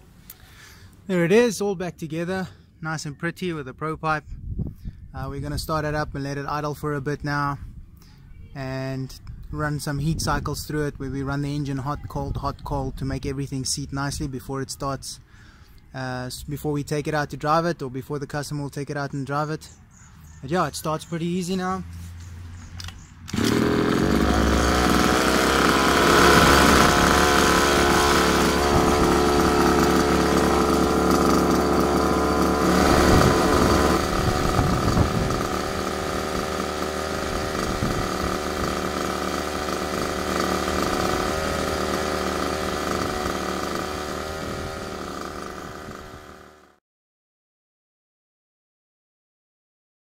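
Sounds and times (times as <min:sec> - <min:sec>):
two-stroke engine idling: 0:23.3 - 0:46.8.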